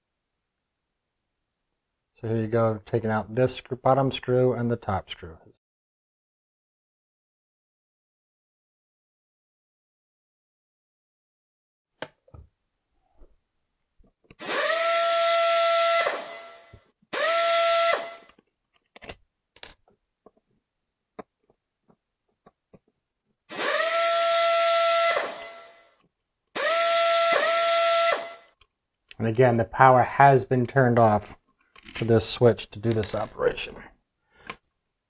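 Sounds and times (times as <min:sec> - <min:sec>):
cordless driver motor whining: 0:14.4 - 0:18.4, 0:23.5 - 0:25.8, 0:26.6 - 0:28.4.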